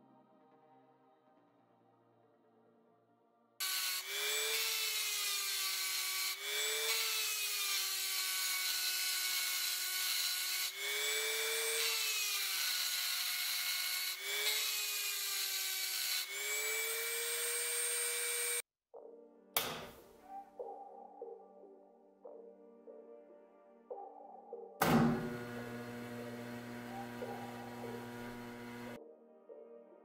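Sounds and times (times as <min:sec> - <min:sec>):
rotary tool grinding steel: 0:03.6 - 0:18.6, 0:25.3 - 0:29.0.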